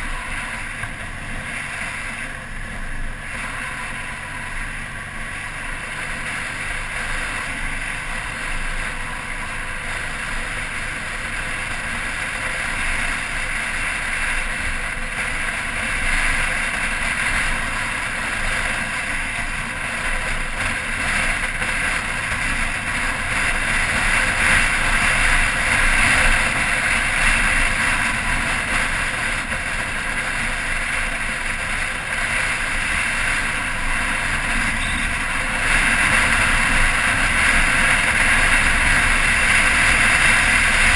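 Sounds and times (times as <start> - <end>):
motorcycle engine drone: 0.0 - 40.9
wind rush on microphone: 0.0 - 40.9.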